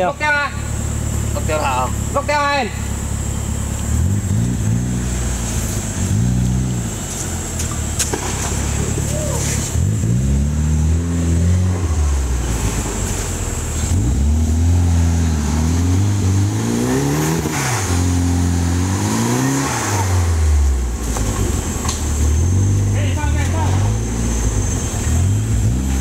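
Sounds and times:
engine revving under load: 0.0 - 26.0
high-pitched whine: 0.0 - 26.0.

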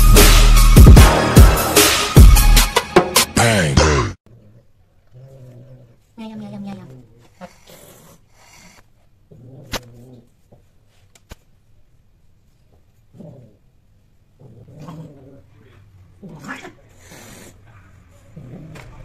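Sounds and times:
cats yowling and growling: 14.6 - 19.0.

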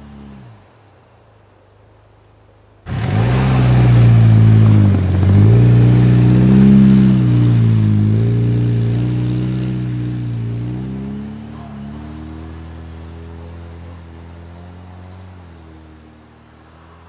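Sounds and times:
tyres churning through snow: 2.8 - 17.0
car engine revving hard: 2.9 - 17.0.

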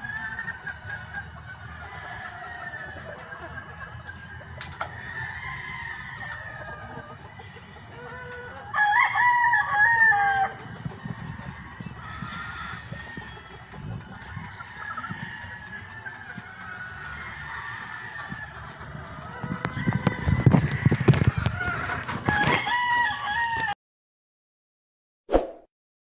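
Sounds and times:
hens clucking softly: 0.1 - 8.8
rooster crowing: 1.7 - 3.6, 4.8 - 7.3, 7.9 - 23.8.

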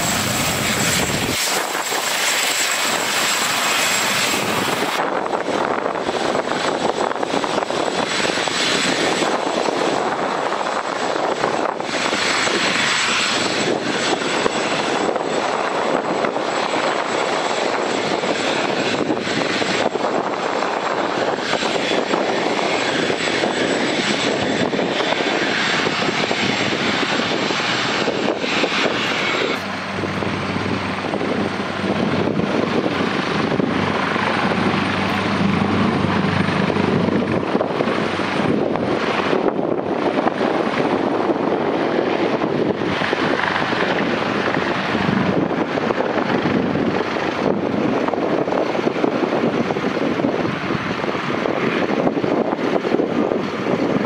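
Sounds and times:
helicopter taking off: 0.0 - 54.0.

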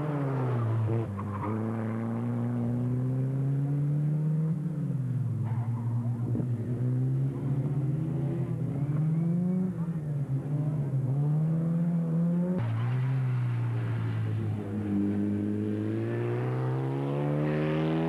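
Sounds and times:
racing car engine revving: 14.0 - 18.0.

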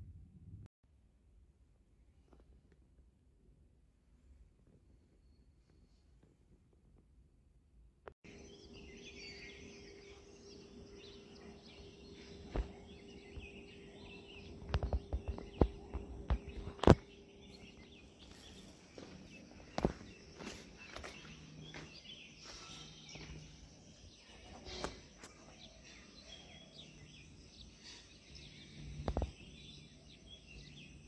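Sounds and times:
birds chirping: 8.3 - 31.0.

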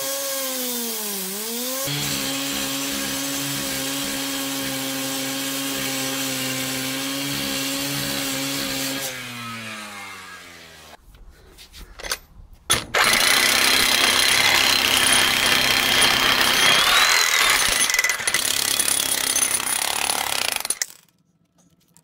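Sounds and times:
jackhammer hammering concrete: 1.9 - 9.1, 12.9 - 21.0.

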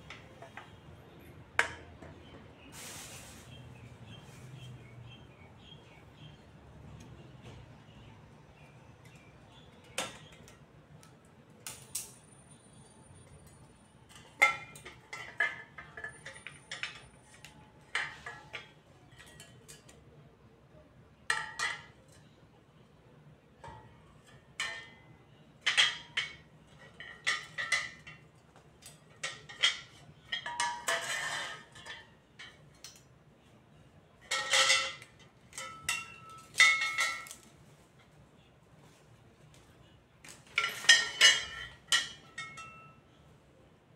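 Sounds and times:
metal frame parts clinking: 13.2 - 20.0, 21.3 - 22.4, 23.6 - 33.1, 34.2 - 38.1, 40.2 - 43.1.

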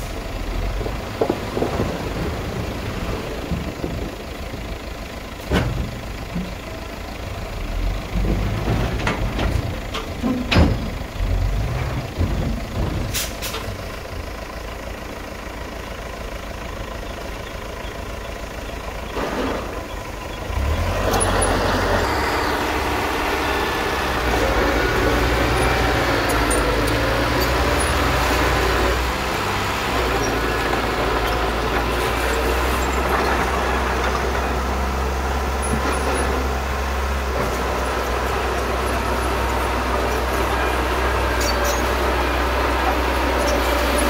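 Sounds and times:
bulldozer engine: 0.0 - 44.0
dump truck diesel engine running: 0.0 - 44.0
tailgate clanks and falling dirt: 5.4 - 6.8, 8.1 - 14.1, 19.0 - 20.0.

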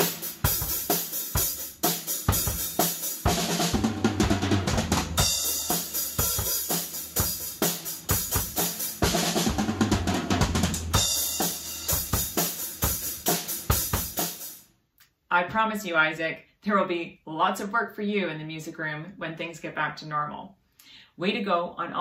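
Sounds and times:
bass drum and snare groove: 0.0 - 14.6.

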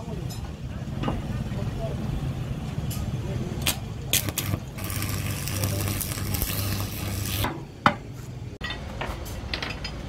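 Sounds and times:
arc welding crackling sizzle: 3.6 - 7.6.

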